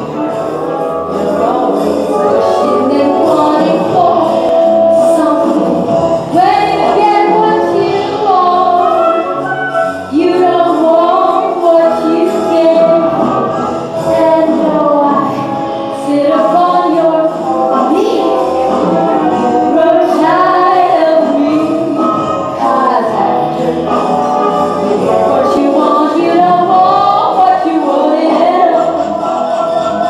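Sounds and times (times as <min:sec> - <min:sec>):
musical accompaniment: 0:00.0 - 0:30.0
woman singing: 0:01.1 - 0:09.3, 0:10.1 - 0:19.0, 0:19.6 - 0:24.0, 0:25.2 - 0:29.1.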